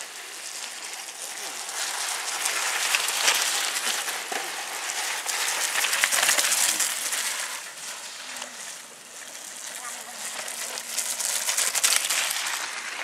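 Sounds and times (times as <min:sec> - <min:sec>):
bike tyres splashing through mud: 0:00.0 - 0:13.0
bikes clicking and rattling: 0:00.0 - 0:13.0.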